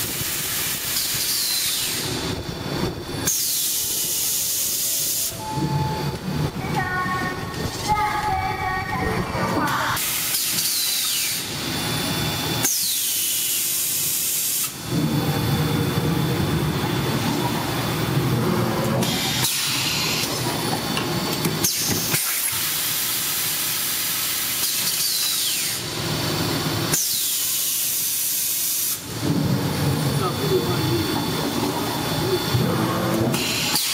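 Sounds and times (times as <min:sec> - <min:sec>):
machine running noise: 0:00.0 - 0:33.9.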